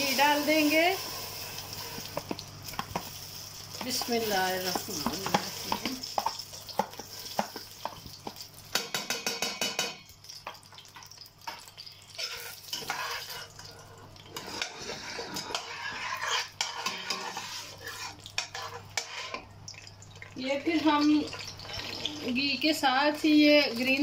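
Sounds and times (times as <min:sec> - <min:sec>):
metal spoon scraping steel pot: 0:12.2 - 0:13.6, 0:14.4 - 0:19.4.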